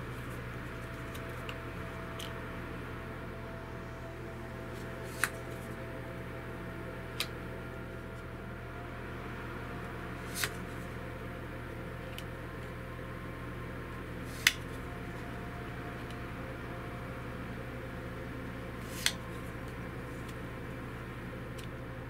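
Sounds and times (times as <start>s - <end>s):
low hum and hiss: 0.0s - 22.0s
cards snapping: 4.8s - 5.8s, 7.1s - 7.4s, 10.2s - 10.8s, 14.3s - 14.8s, 18.8s - 19.4s.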